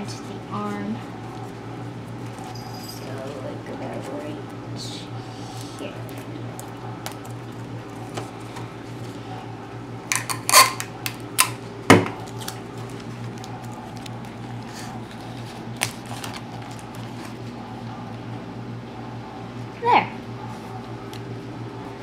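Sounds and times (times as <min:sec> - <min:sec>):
steady low hum: 0:00.0 - 0:22.0
sticky tape and newspaper crackling: 0:12.2 - 0:17.5.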